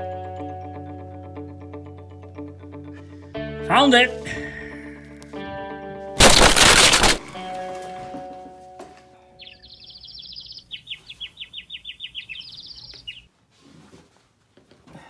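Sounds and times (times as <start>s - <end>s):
cartoon bird chirping trills: 9.4s - 13.2s.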